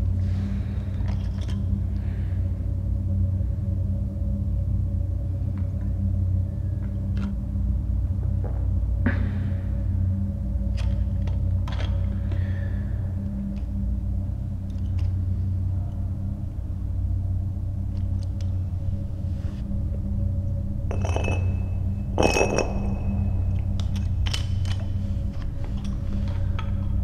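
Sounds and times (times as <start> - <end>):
low rumbling drone: 0.0 - 27.0.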